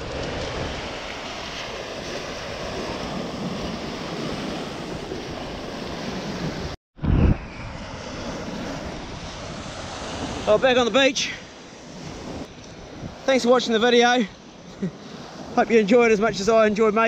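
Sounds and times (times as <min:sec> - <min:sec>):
wind on microphone: 0:00.0 - 0:10.9, 0:11.6 - 0:13.7
surf: 0:00.0 - 0:17.0.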